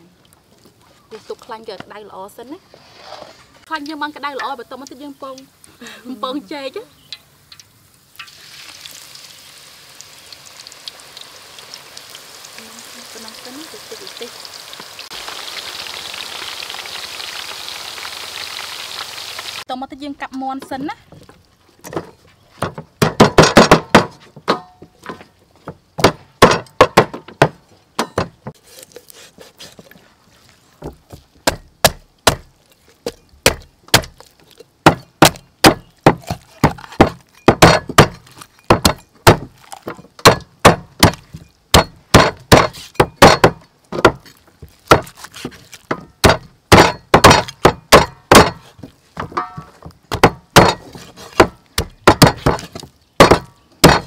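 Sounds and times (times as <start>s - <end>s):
meat cleaver chopping on wooden block: 34.9s - 38.1s, 45.9s - 48.6s, 50.1s - 52.6s, 53.2s - 54.0s.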